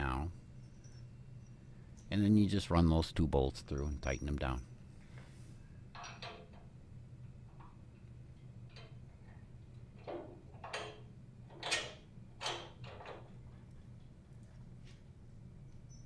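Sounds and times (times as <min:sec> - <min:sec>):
metal bolts clicking and scraping: 0:05.9 - 0:06.7, 0:10.0 - 0:14.0.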